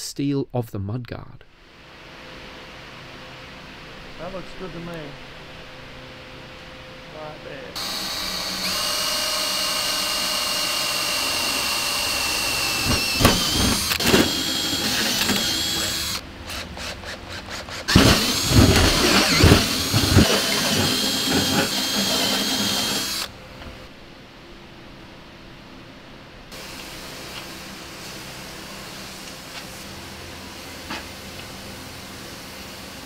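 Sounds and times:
drill bit knocking: 0:07.8 - 0:23.3
drill boring through sheet steel: 0:07.8 - 0:23.3
drill rapid clicking: 0:07.8 - 0:23.3.

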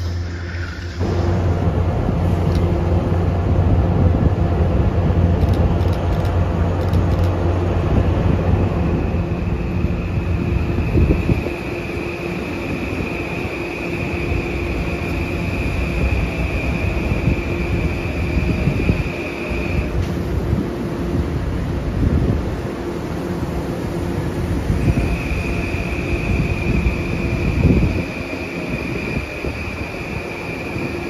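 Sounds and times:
high-pitched traction whine: 0:00.0 - 0:03.5, 0:07.2 - 0:20.2, 0:23.5 - 0:31.0
train wheels rumbling: 0:00.0 - 0:31.0.

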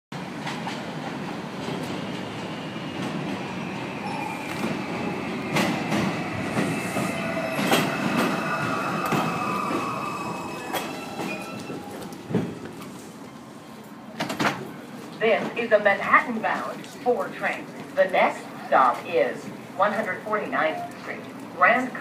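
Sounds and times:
train wheels squealing on rails: 0:03.9 - 0:12.2.

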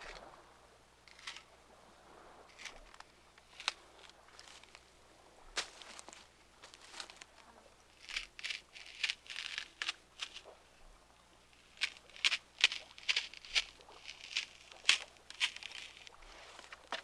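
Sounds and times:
knife shaving wood: 0:03.4 - 0:03.8, 0:08.0 - 0:10.5, 0:11.6 - 0:17.0.

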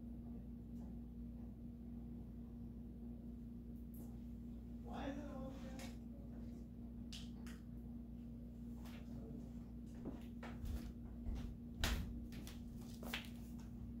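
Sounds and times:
steady low hum: 0:00.0 - 0:14.0
barefoot footsteps on hardwood: 0:09.9 - 0:13.2.

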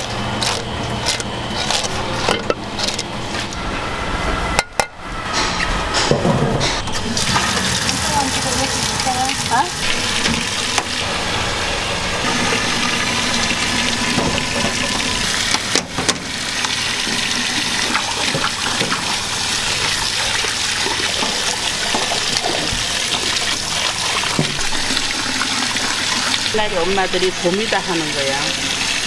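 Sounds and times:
tap water gushing into sink: 0:07.0 - 0:29.0.

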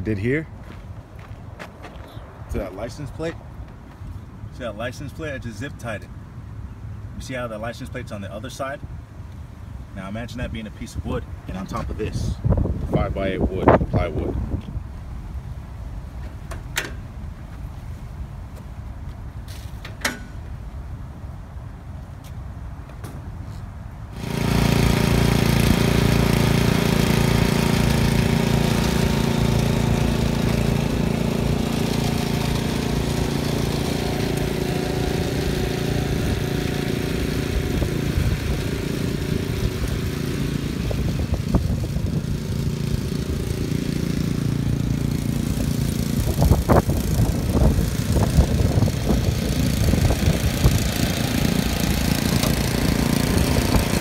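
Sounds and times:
lawn mower engine running: 0:24.1 - 0:54.0.

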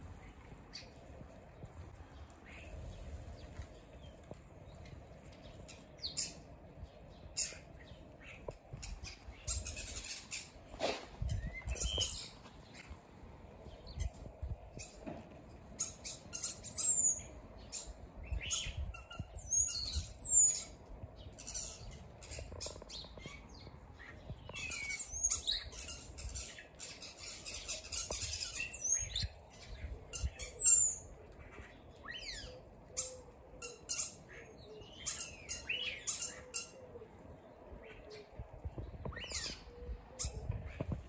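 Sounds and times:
starlings calling: 0:15.7 - 0:23.7.

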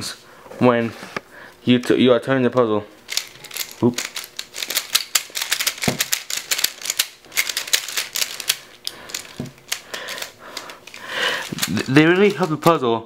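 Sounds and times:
puzzle cube clicking: 0:03.1 - 0:12.8.

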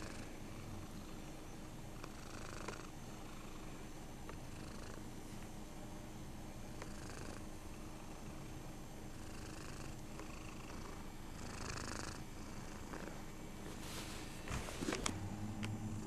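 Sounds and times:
cat purring: 0:00.0 - 0:01.4, 0:02.0 - 0:05.2, 0:06.7 - 0:16.0.

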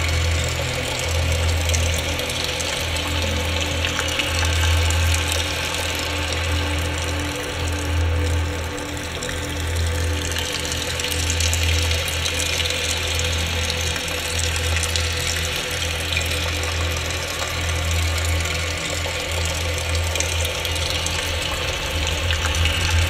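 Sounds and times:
low drone: 0:00.0 - 0:23.0.

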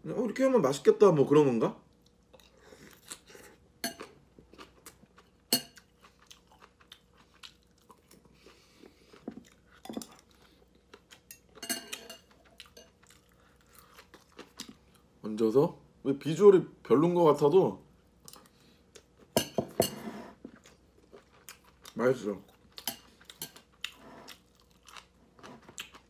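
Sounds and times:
close-up chewing: 0:01.9 - 0:11.6, 0:12.2 - 0:15.1, 0:20.3 - 0:26.0.

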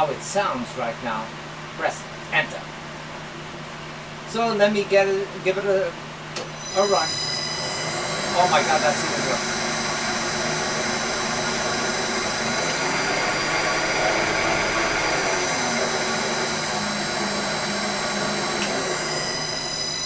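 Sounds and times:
high-pitched electrical whine: 0:04.3 - 0:20.0
lathe motor hum: 0:06.5 - 0:20.0.

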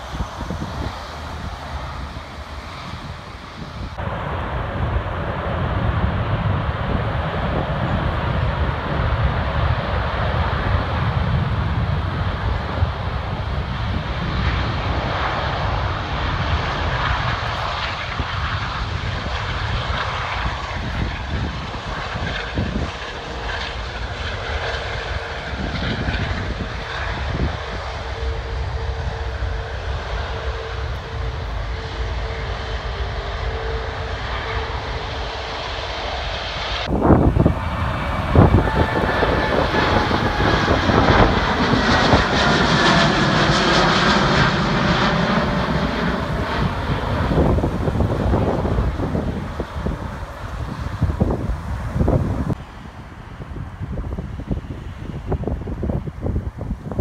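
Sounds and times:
jet engine whine overhead: 0:00.0 - 0:57.0
low jet rumble: 0:00.0 - 0:57.0
road traffic passing: 0:36.8 - 0:52.6.

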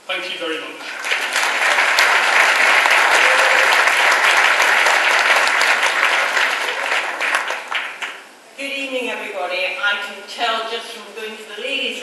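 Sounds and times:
audience applauding: 0:00.8 - 0:08.3.

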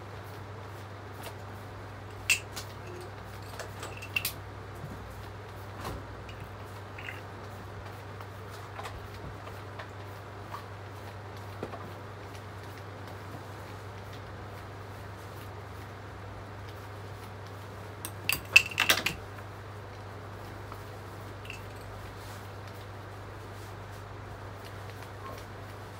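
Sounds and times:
light clicks and taps: 0:06.2 - 0:07.2.

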